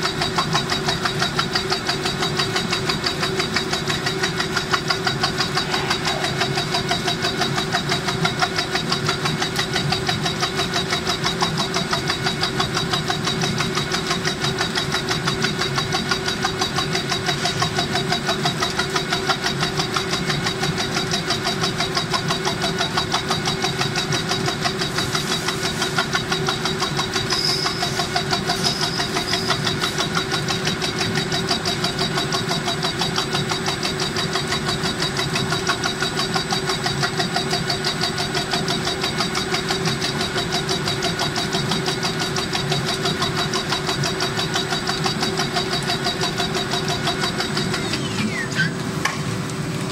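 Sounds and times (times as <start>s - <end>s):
steady machine whine: 0.0s - 49.9s
mechanical strokes of tufting machine: 4.3s - 7.8s.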